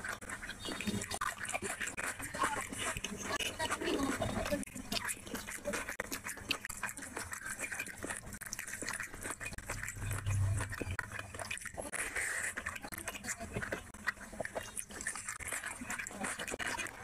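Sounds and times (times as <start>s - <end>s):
low rumble: 9.6s - 11.2s.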